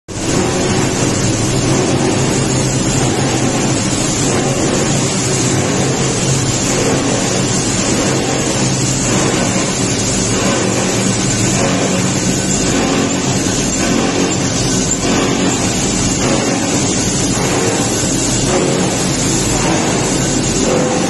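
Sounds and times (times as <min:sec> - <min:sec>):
recycling machinery din: 0:00.1 - 0:21.0
steady low hum: 0:00.1 - 0:21.0.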